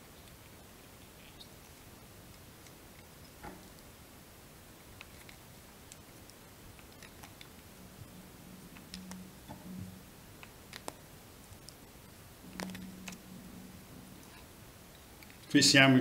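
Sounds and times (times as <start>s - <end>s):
soft low hums: 0.0s - 16.0s
faint clicks of hands handling materials: 8.7s - 13.3s.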